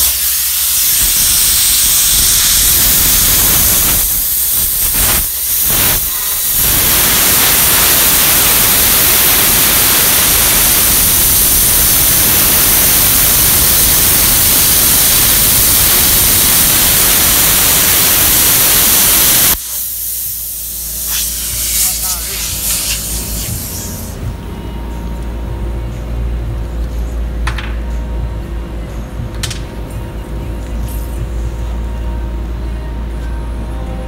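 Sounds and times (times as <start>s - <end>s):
plasma cutter hissing: 0.0s - 24.2s.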